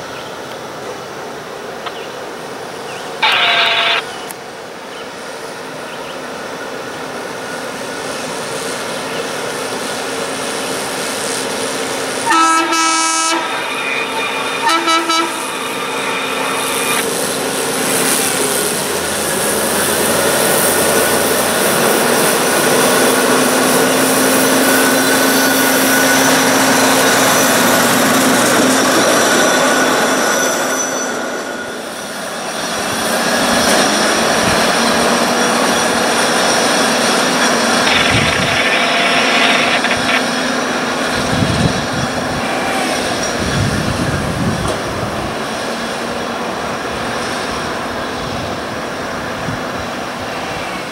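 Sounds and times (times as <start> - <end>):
track machine running on rails: 0.0 - 50.9
train horn blasts: 12.2 - 17.0.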